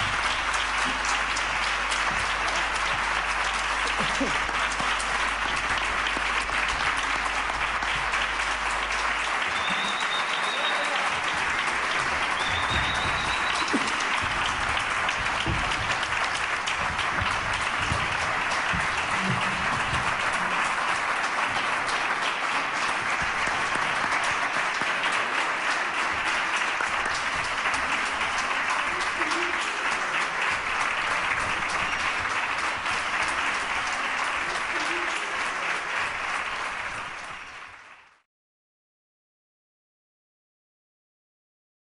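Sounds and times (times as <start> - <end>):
audience applauding: 0.0 - 38.2
high whistle: 9.5 - 11.0, 12.4 - 13.7.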